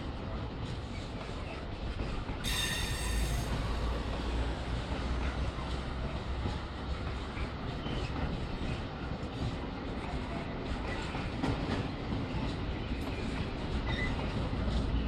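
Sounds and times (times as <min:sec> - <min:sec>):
high-pitched wheel squeal: 0:02.4 - 0:03.6.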